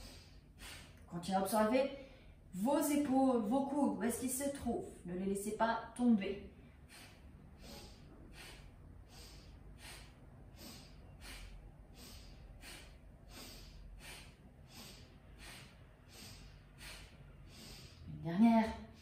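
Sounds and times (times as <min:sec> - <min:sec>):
breathing through the nose: 0:00.0 - 0:01.1, 0:06.6 - 0:18.1.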